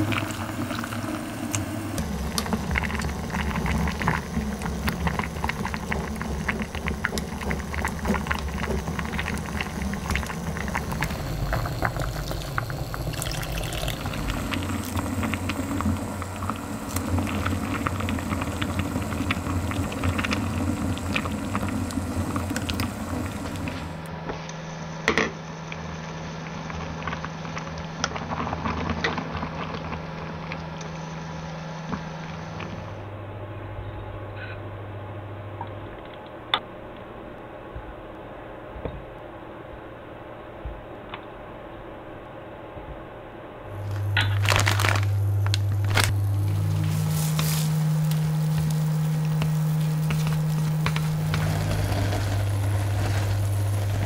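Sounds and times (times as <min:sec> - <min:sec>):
water boiling in a pot: 0:00.0 - 0:24.2, 0:24.9 - 0:32.9, 0:43.7 - 0:54.0
low steady hum: 0:00.0 - 0:54.0.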